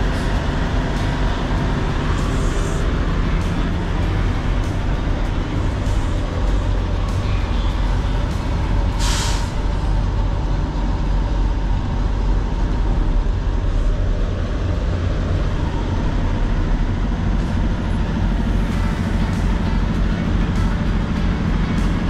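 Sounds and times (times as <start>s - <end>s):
diesel truck engine rumbling: 0.0s - 22.0s
air brake hiss: 8.9s - 9.8s.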